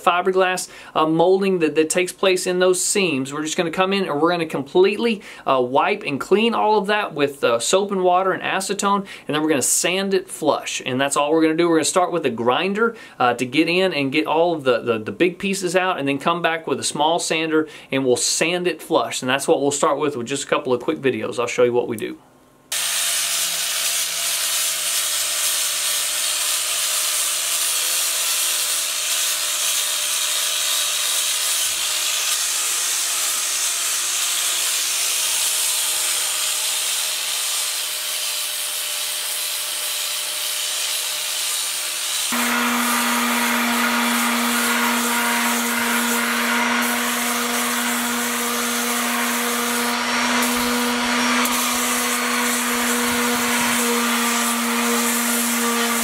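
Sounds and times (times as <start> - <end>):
grinder grinding fiberglass: 22.7 - 56.0
orbital sander humming: 22.7 - 56.0.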